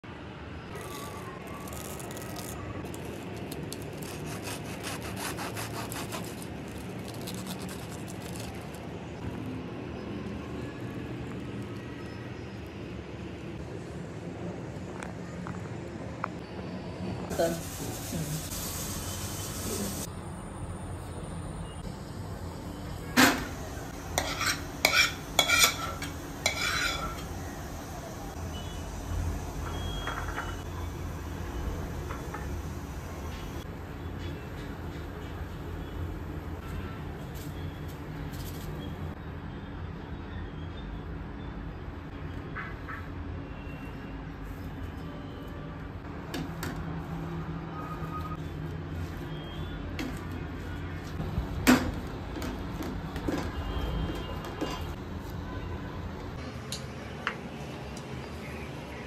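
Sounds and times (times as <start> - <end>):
knife sawing through crusty bread: 4.0 - 8.0
utensil clinking on metal cookware: 24.1 - 27.3.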